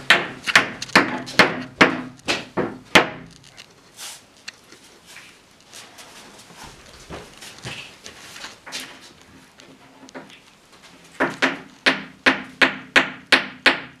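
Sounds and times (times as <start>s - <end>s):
small hammer striking wood: 0.0s - 3.3s, 11.2s - 14.0s.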